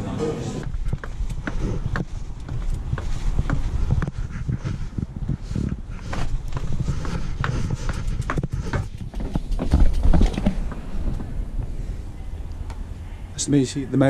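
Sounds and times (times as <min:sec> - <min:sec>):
low rumble: 0:00.0 - 0:13.4
footsteps on stone steps: 0:00.6 - 0:11.8
bike knocks and rattles: 0:07.9 - 0:11.4.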